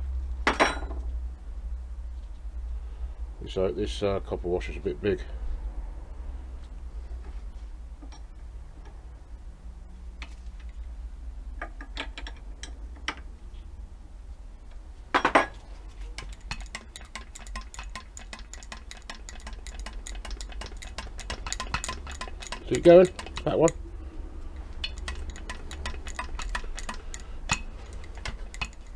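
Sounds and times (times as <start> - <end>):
rapid fine ticking: 16.2 - 23.8, 24.6 - 28.9
grease gun metallic clicks: 24.6 - 28.9.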